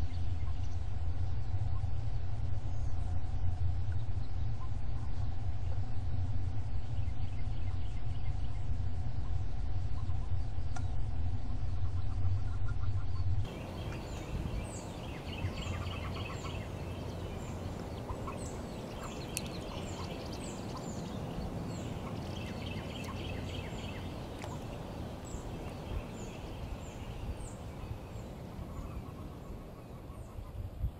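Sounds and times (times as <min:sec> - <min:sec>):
low rumble: 0:00.0 - 0:30.9
birds chirping: 0:13.5 - 0:30.9.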